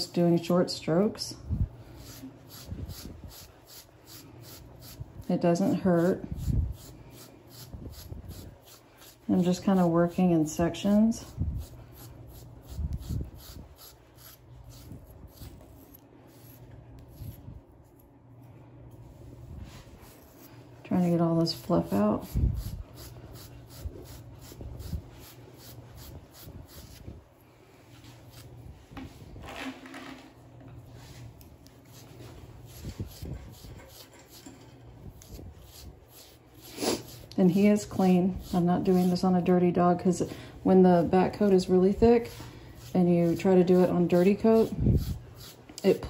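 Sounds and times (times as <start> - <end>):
knife scraping through dog fur: 10.6 - 18.1, 21.2 - 27.1, 31.8 - 39.5, 41.3 - 46.0.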